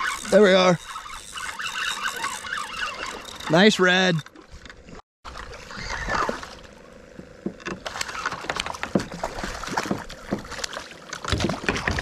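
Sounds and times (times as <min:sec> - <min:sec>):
fish splashing in water: 0:07.9 - 0:12.0.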